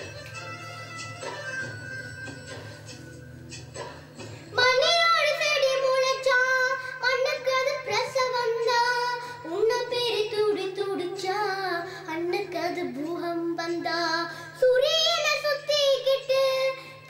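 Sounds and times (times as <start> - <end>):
quiet instrumental music: 0.0 - 17.0
girl singing into microphone: 4.5 - 17.0.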